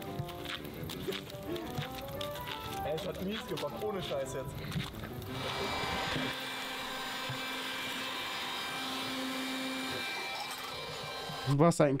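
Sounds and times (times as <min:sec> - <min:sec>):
cordless vacuum cleaner running: 0:05.3 - 0:11.6.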